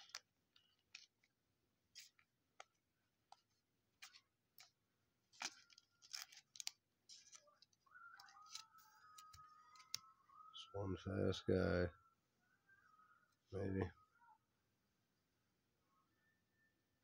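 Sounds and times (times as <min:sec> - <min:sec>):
wrapper crinkling and tearing: 0:00.0 - 0:01.3, 0:04.0 - 0:10.0.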